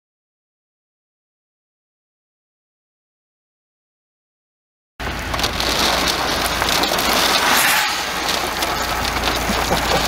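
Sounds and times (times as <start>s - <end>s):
heavy rain: 5.0s - 10.0s
low steady rumble: 5.0s - 10.0s
wind: 5.0s - 10.0s.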